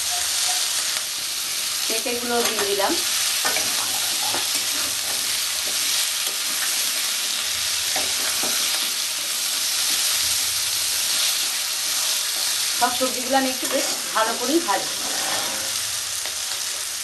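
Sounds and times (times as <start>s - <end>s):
vegetables sizzling in hot oil: 0.0s - 17.0s
metal spatula scraping pan: 13.5s - 16.0s.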